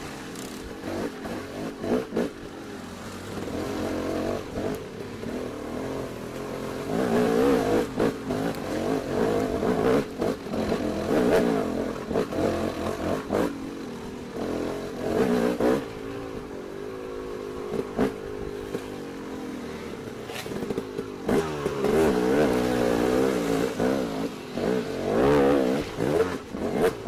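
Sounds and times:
small engines revving: 0.0s - 27.0s.

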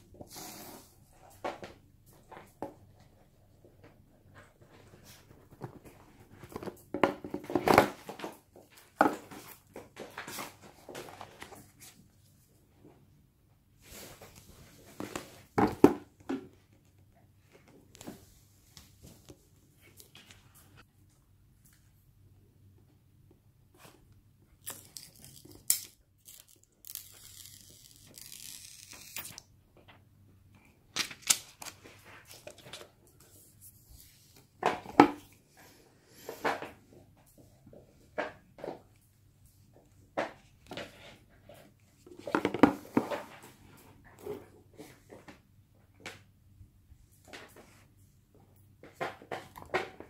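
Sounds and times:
plastic film peeling: 24.6s - 29.4s.

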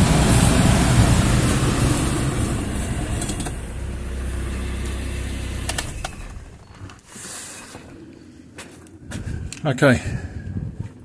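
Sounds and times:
heater blower running: 0.0s - 6.0s
car engine idling: 0.0s - 7.0s.

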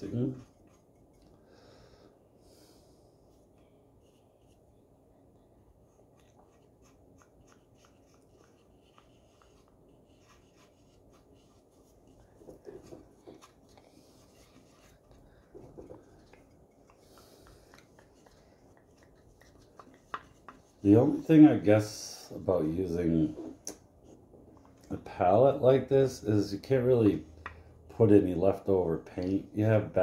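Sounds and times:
paintbrushes rubbing on wood: 5.9s - 22.0s.

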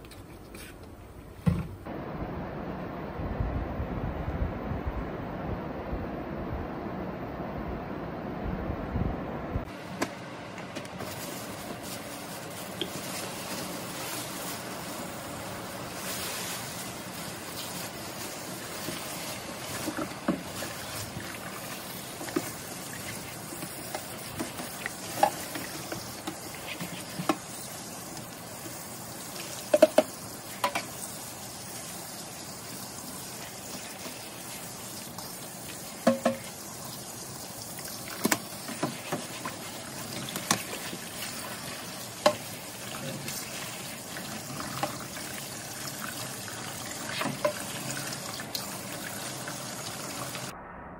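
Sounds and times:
sponge scrubbing in soapy water: 11.0s - 50.5s
metal filters knocking on sink: 29.7s - 30.8s, 36.0s - 36.5s.

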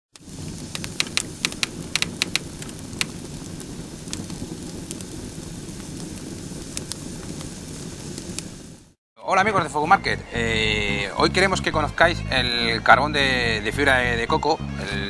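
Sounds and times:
fire crackling and popping: 0.1s - 9.0s
fire roaring: 0.1s - 9.0s.

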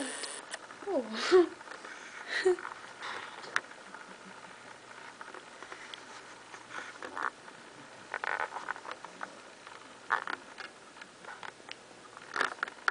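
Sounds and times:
hands rustling and scraping: 4.9s - 7.3s, 8.1s - 9.4s.

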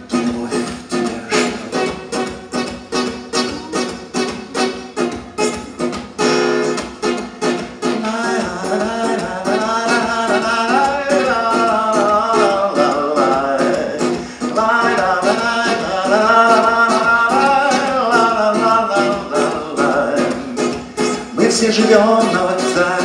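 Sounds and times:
man singing: 0.0s - 2.4s, 7.7s - 23.0s
acoustic guitar strumming: 0.0s - 23.0s.

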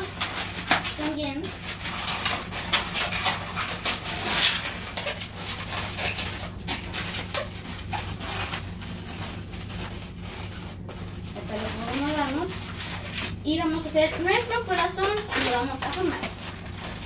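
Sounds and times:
balloons squeaking: 0.0s - 17.0s.

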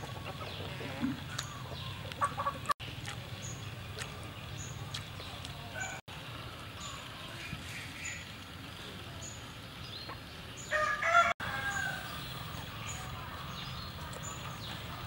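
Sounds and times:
chickens clucking: 0.0s - 6.0s, 9.9s - 15.0s.

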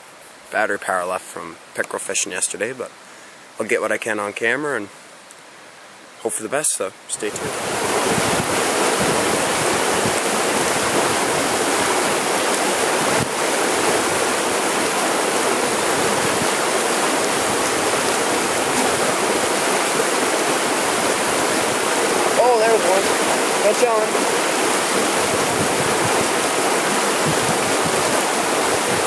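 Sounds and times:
fast river rushing: 5.8s - 29.0s.

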